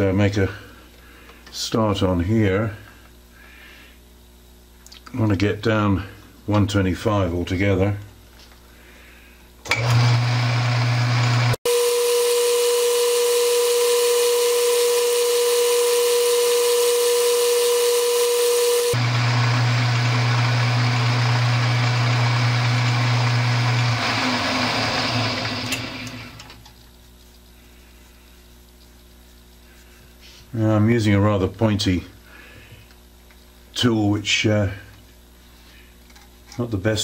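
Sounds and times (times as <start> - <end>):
metal lathe motor hum: 9.7 - 26.6.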